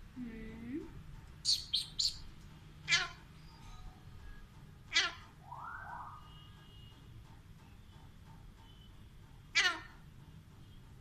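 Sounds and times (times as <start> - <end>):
parakeet calling: 1.4 - 3.2, 4.9 - 5.3, 9.5 - 10.0.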